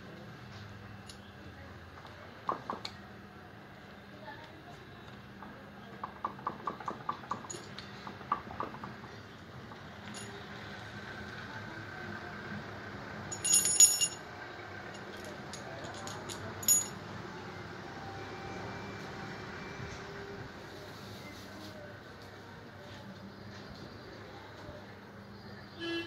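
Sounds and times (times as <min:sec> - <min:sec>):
ringing metal clinks: 0:10.0 - 0:10.4, 0:13.3 - 0:14.2, 0:15.0 - 0:17.0
metal parts clicking: 0:13.3 - 0:14.2, 0:14.9 - 0:17.0.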